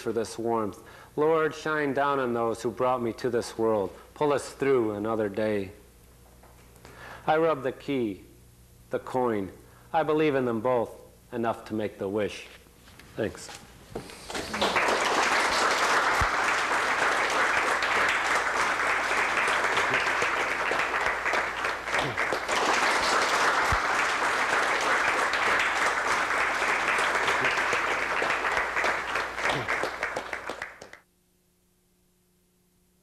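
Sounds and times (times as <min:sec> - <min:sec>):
faint hum: 0:00.0 - 0:33.0
audience applauding: 0:14.2 - 0:31.0.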